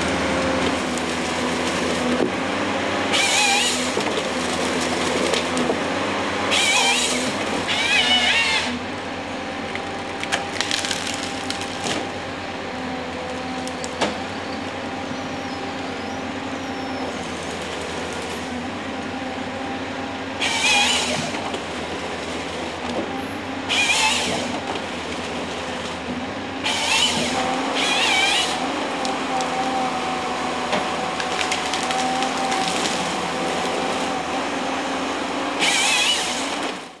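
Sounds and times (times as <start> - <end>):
harvester engine running: 0.0 - 37.0
chainsaw cutting wood: 3.1 - 5.9, 6.5 - 8.8, 20.4 - 21.6, 23.7 - 26.0, 26.6 - 37.0.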